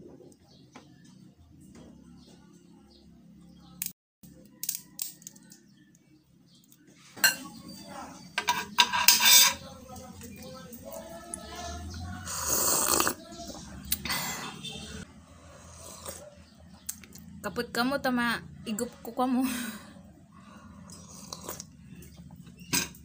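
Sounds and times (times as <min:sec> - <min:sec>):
loud coffee slurp: 0:12.3 - 0:13.2, 0:15.6 - 0:16.2, 0:20.9 - 0:21.7.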